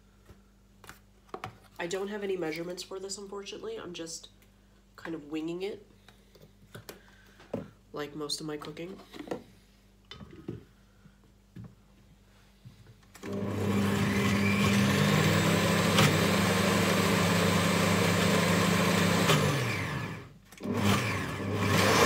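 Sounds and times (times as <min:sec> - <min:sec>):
blender motor running: 0:13.2 - 0:22.0.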